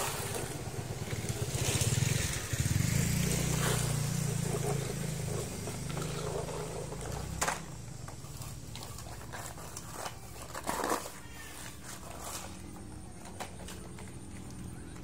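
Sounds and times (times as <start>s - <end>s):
low engine hum: 0.0s - 10.0s
toy trucks knocking on dirt: 3.6s - 15.0s.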